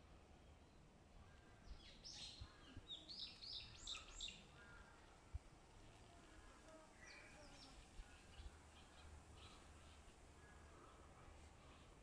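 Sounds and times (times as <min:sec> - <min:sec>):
faint bird chirps: 0:00.4 - 0:05.2, 0:05.8 - 0:12.0.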